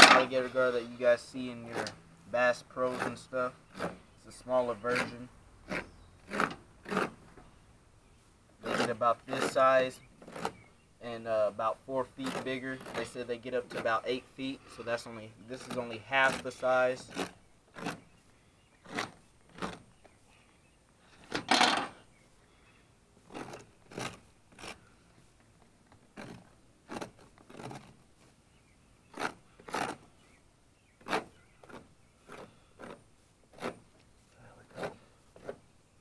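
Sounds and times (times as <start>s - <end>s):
knife scraping fish hide: 0.0s - 2.0s, 2.6s - 7.2s, 8.6s - 20.1s, 23.2s - 28.3s, 29.0s - 30.3s, 31.0s - 34.0s, 34.7s - 35.7s.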